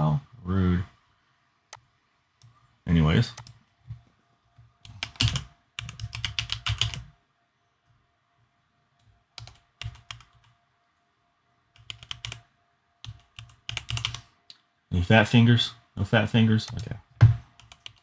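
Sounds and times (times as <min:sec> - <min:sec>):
computer keyboard typing: 0:03.3 - 0:03.6, 0:04.8 - 0:07.1, 0:09.0 - 0:10.6, 0:11.7 - 0:12.4, 0:13.0 - 0:14.3, 0:16.7 - 0:18.0.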